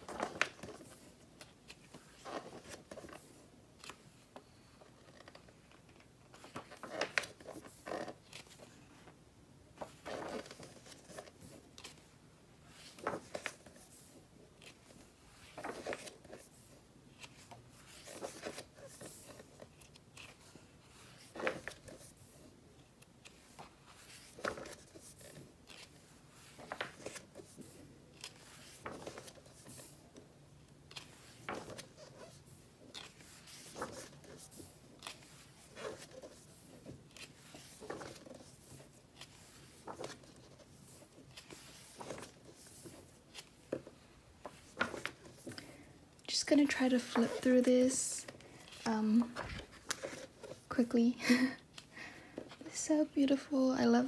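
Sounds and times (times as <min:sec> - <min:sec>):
magazine pages turning: 0:00.0 - 0:50.9.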